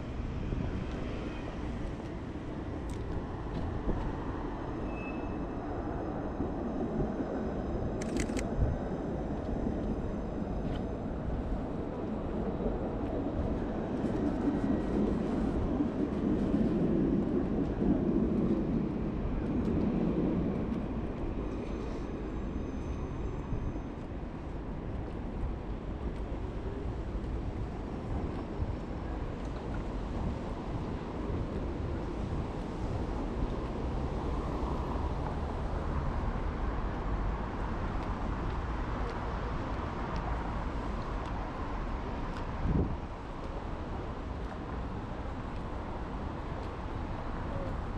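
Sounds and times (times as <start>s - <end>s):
low city rumble: 0.0s - 47.9s.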